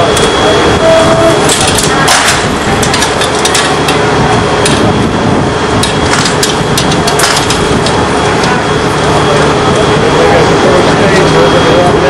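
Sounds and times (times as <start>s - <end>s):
heavy engine running: 0.0s - 12.0s.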